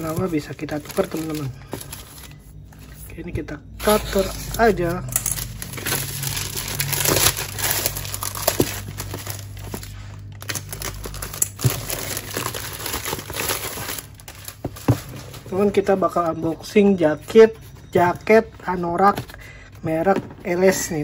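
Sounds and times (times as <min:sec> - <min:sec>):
plastic bag crinkling: 0:00.0 - 0:02.6, 0:03.8 - 0:16.4.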